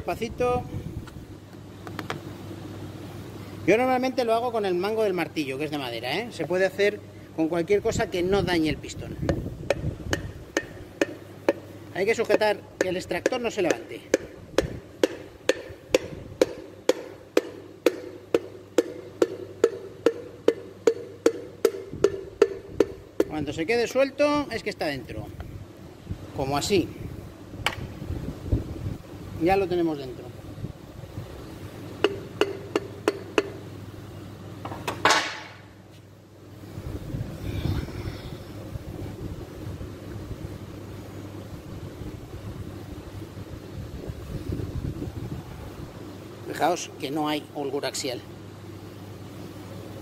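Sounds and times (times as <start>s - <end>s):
hammer handle tapping piston: 9.2s - 23.4s, 32.0s - 33.6s.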